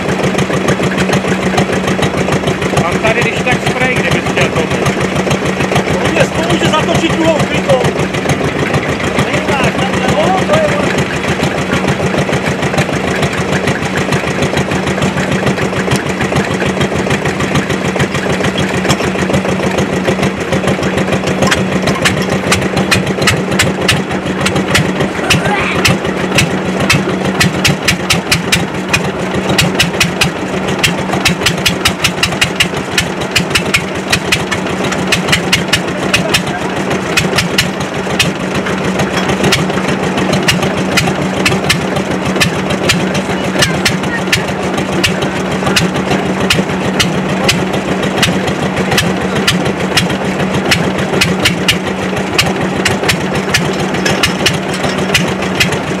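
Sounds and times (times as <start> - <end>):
tractor engine knocking: 0.0 - 56.0.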